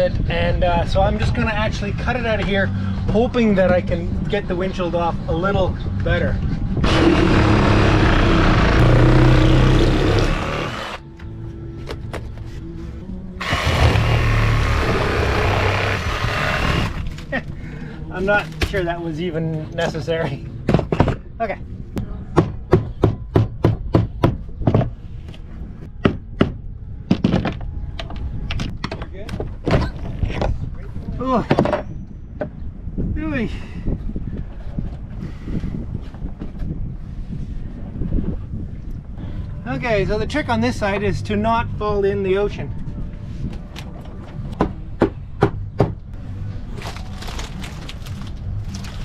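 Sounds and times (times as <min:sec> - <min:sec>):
old wood crackling and creaking: 0:46.6 - 0:49.0.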